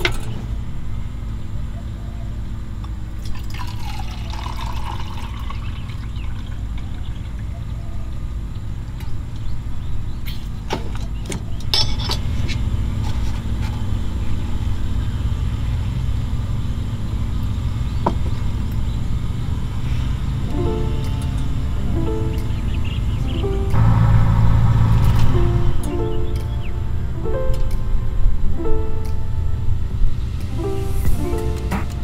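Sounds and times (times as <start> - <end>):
liquid pouring from a pot: 3.2 - 7.1
steady low rumble: 11.5 - 32.0.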